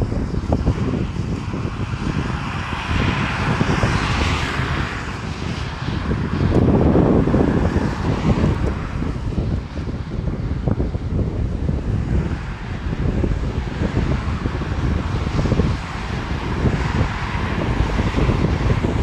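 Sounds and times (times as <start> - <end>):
passing road traffic: 0.0 - 19.0
wind buffeting microphone: 0.0 - 19.0.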